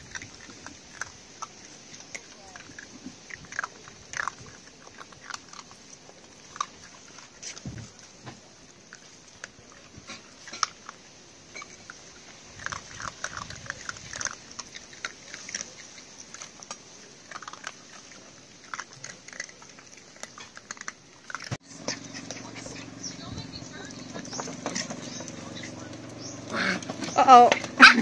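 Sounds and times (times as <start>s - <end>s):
puppies crunching dry kibble: 0.0s - 28.0s.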